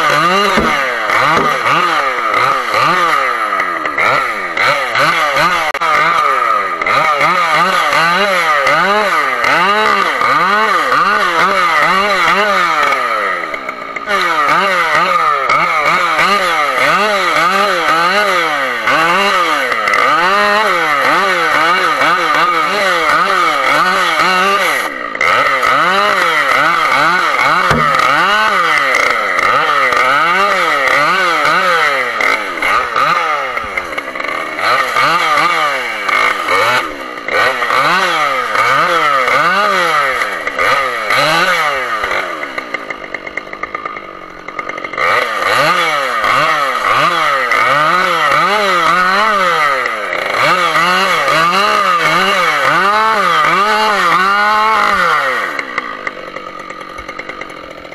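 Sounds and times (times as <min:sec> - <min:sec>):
chainsaw engine revving: 0:00.0 - 0:57.9.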